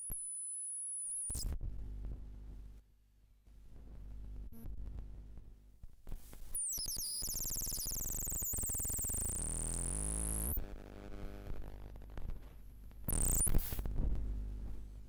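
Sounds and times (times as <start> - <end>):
low electronic hum: 1.6 - 5.8, 8.8 - 15.0
glitchy clicks: 6.6 - 14.0
dense electronic buzzing: 7.2 - 15.0.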